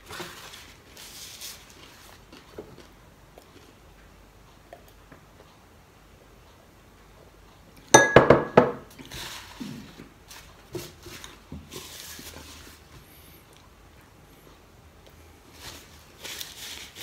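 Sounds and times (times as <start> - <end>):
glass mug clinking on table: 8.0 - 8.8
tabletop noises: 8.0 - 13.2.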